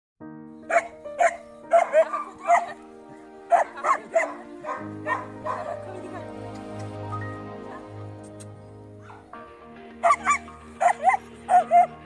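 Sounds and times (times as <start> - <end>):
background music: 0.2 - 12.0
puppy barking: 0.6 - 5.9, 7.6 - 8.0, 9.0 - 9.3, 10.0 - 12.0.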